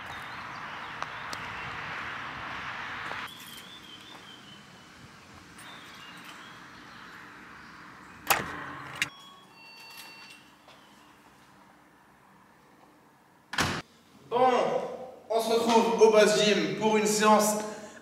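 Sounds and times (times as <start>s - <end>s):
footsteps on gravel: 0.0s - 1.6s, 3.0s - 4.4s.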